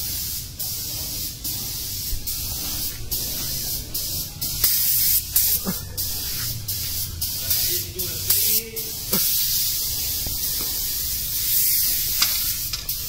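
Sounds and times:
paint spray gun hissing: 0.0 - 13.0.

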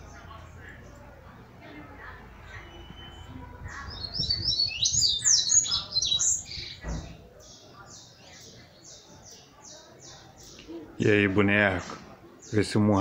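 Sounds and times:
soft bird chirps: 2.4 - 10.8.

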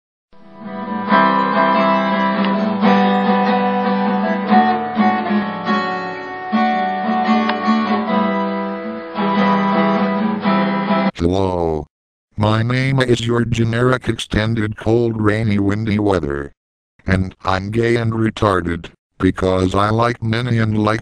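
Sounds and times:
plucked guitar music: 0.4 - 11.1.

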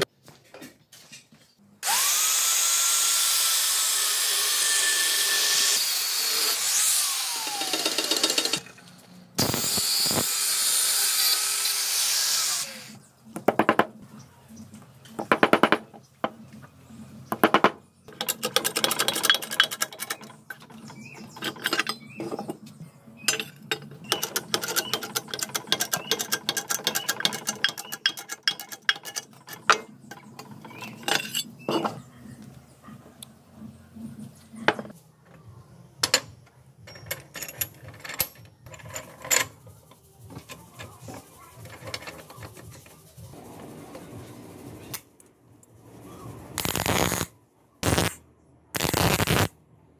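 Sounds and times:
steel parts and tools clinking: 18.1 - 22.6, 23.2 - 32.0, 36.0 - 42.9.

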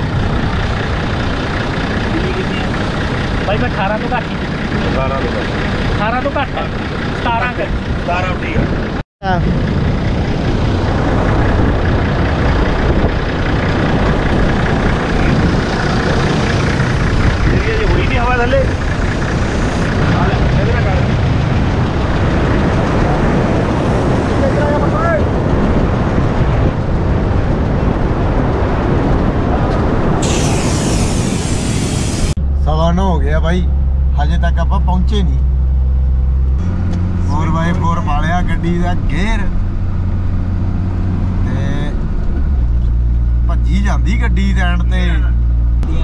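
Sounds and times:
wind buffeting microphone: 0.0 - 32.4
vehicle engine running: 0.0 - 46.0
high hiss: 30.2 - 32.4.

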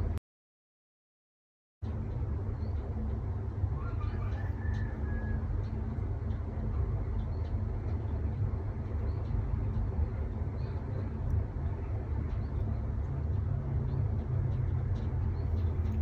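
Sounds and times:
low background rumble: 1.8 - 16.0.

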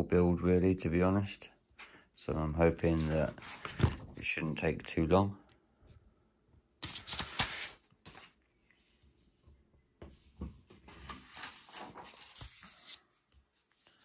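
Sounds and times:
paper sheets rustling: 2.8 - 4.2, 6.8 - 8.4, 10.7 - 14.0.

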